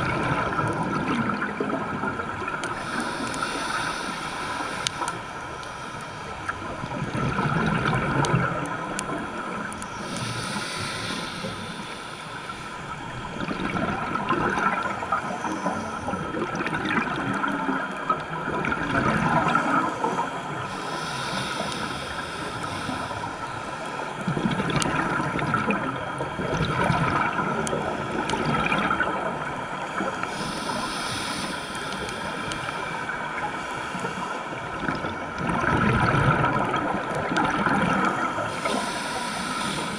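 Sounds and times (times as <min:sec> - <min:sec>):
hiss of breaths drawn in: 0:02.7 - 0:06.4, 0:09.8 - 0:13.0, 0:20.6 - 0:24.1, 0:30.2 - 0:34.6, 0:38.4 - 0:39.9.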